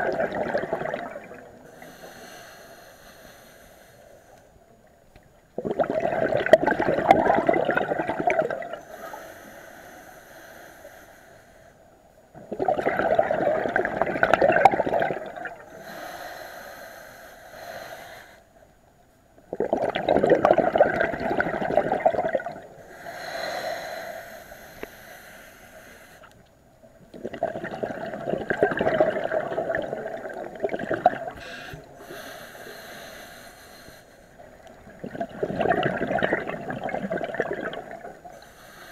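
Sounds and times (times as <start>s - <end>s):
bubbling diver exhalations: 0.0s - 1.9s, 5.6s - 8.8s, 12.4s - 15.7s, 19.5s - 22.7s, 27.2s - 32.3s, 34.8s - 38.3s
hissing regulator inhalation: 22.8s - 26.3s.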